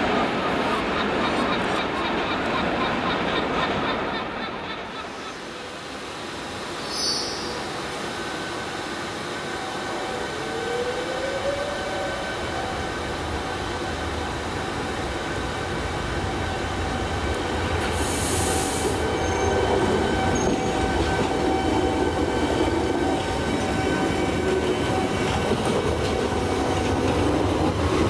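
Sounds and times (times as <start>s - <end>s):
train rumbling: 0.0s - 28.0s
brief high hiss: 6.8s - 7.7s, 17.9s - 19.0s.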